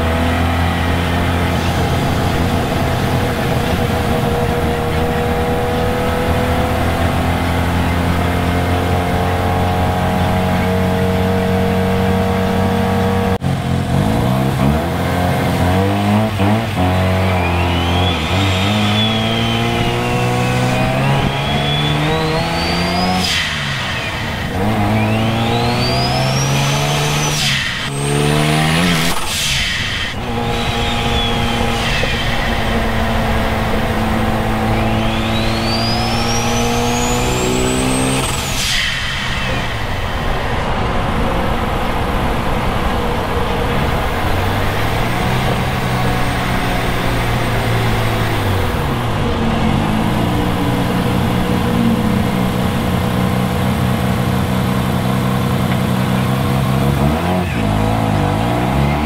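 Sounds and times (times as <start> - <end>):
rotary engine accelerating: 0.0 - 59.0
turbo whistle: 16.1 - 42.0
short rush of noise: 16.2 - 53.0.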